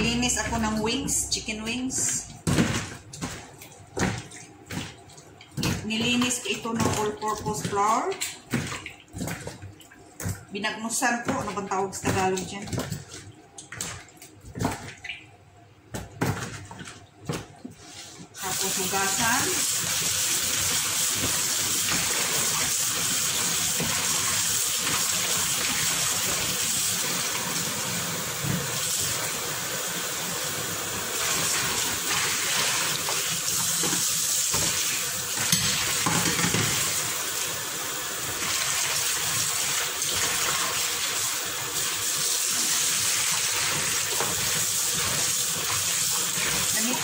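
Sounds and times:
tap water running into basin: 0.0s - 15.4s, 16.0s - 47.0s
water splashing: 0.0s - 17.6s.

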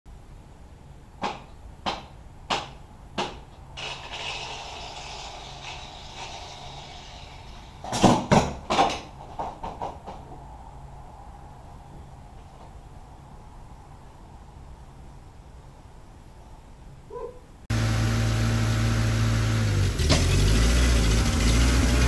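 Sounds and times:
steady hiss: 0.1s - 8.2s
sharp knocks: 1.2s - 3.5s
clatter: 19.7s - 22.0s.

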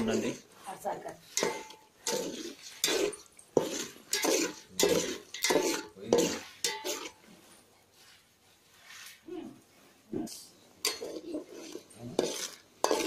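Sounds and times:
metal spoon scraping metal bowl: 1.2s - 7.2s, 10.8s - 13.0s.

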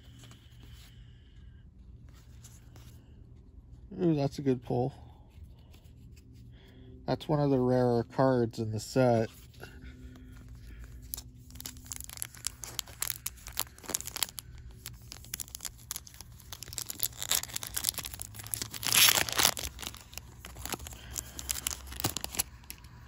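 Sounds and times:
foil pack crinkling: 10.0s - 23.0s
foil pack tearing: 11.0s - 22.8s.

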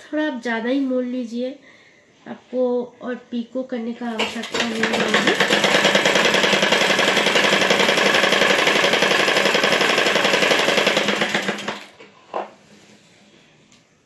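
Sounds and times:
sewing machine running fast: 4.1s - 12.0s.

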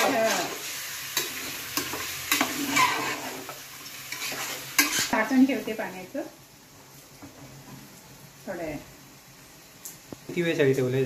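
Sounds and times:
metal spoon scraping pot: 1.2s - 5.2s.

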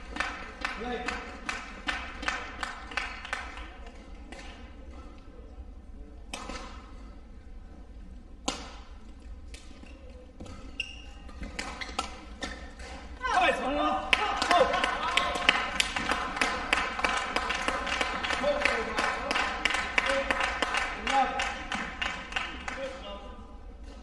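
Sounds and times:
racket hitting shuttlecock: 0.1s - 5.1s, 6.2s - 7.3s, 8.3s - 14.7s
shoe squeak on court: 9.8s - 12.6s.

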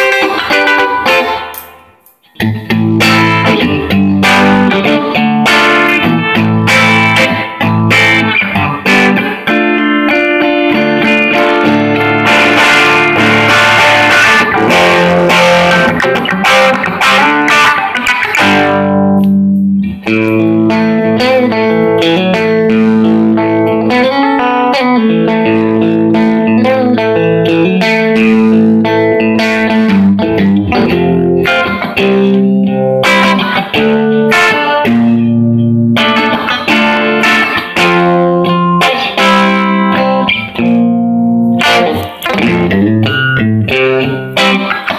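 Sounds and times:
electric guitar playing: 0.0s - 44.9s.

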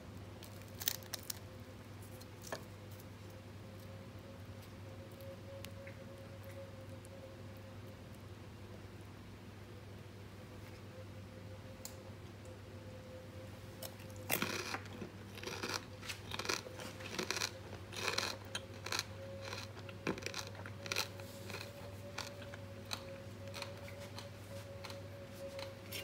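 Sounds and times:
faint steady hum: 0.0s - 26.0s
crispy pork skin crunching: 0.4s - 3.1s, 13.8s - 25.0s.

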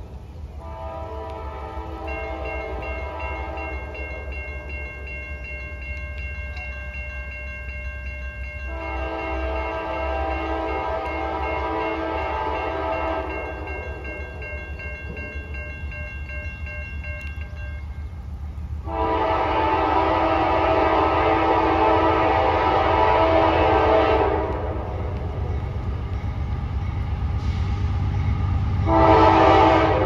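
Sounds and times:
locomotive air horn blasts: 0.6s - 4.0s, 8.7s - 13.7s, 18.8s - 25.1s, 28.8s - 30.0s.

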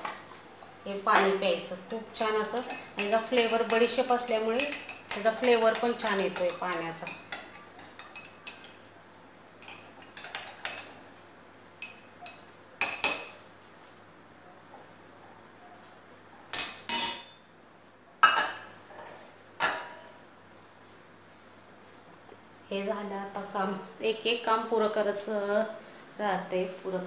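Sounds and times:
utensils and dishes clinking: 16.5s - 17.4s.

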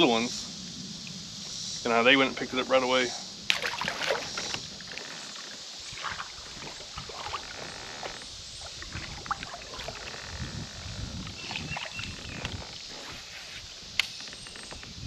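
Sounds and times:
steady high hiss: 0.0s - 15.0s
paddle splashes and drips: 3.5s - 10.4s, 11.3s - 12.6s.

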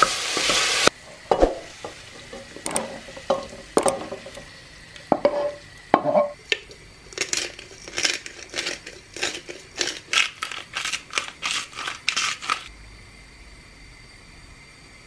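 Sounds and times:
pepper mill grinding: 6.5s - 12.7s.

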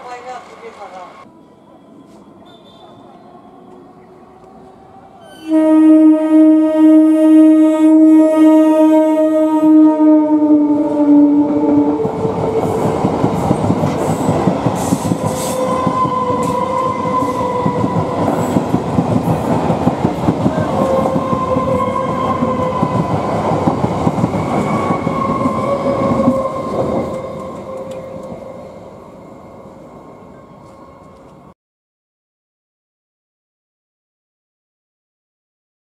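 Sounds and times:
steady train whine: 0.0s - 31.5s
train horn: 1.4s - 3.8s, 5.2s - 12.9s, 15.1s - 18.6s, 20.5s - 23.3s, 24.5s - 28.3s
train wheels clattering on rails: 12.0s - 28.4s.

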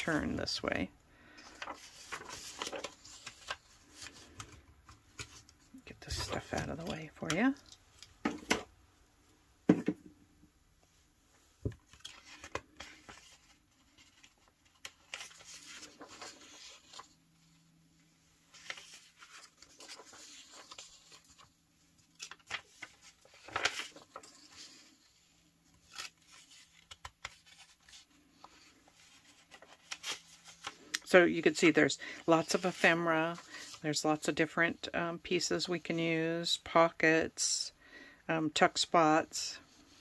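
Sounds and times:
paper sheets rustling and sliding: 1.3s - 7.4s, 11.6s - 17.6s, 18.5s - 33.8s.

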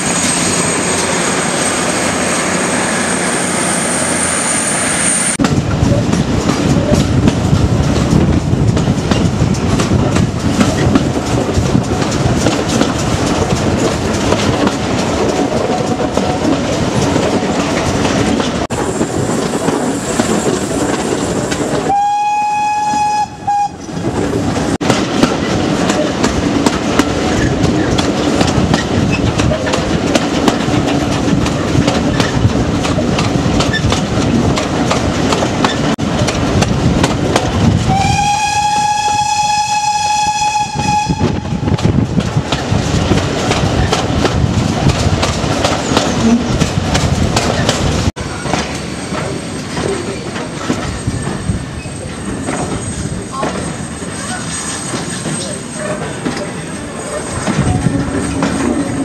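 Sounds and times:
train wheels rattling over rails: 0.0s - 22.0s, 22.8s - 59.0s
steam locomotive whistle: 21.9s - 23.9s, 37.9s - 41.8s.

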